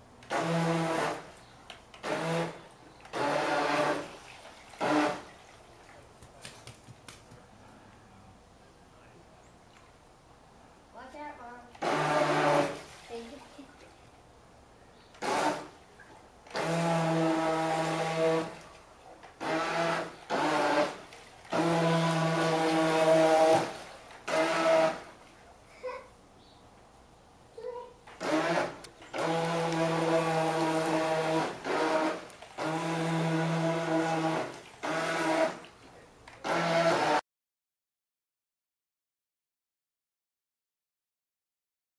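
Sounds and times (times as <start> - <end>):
toy boat electric motor whining: 0.2 - 1.3, 2.0 - 4.2, 4.8 - 5.3, 11.8 - 12.8, 15.2 - 15.8, 16.5 - 18.6, 19.4 - 25.2, 28.1 - 35.7, 36.4 - 37.2
electric motor whining: 28.2 - 35.6, 36.4 - 37.2.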